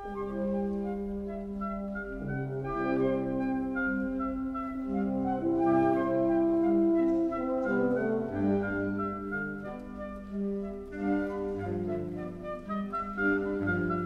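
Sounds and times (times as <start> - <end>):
wind and brass ensemble playing: 0.0 - 14.0.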